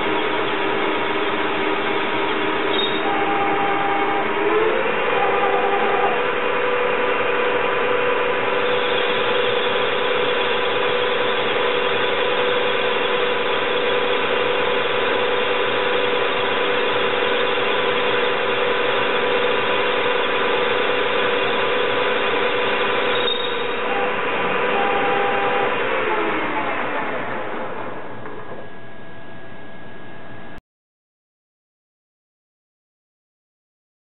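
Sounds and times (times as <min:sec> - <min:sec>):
lathe motor whine: 0:00.0 - 0:30.6.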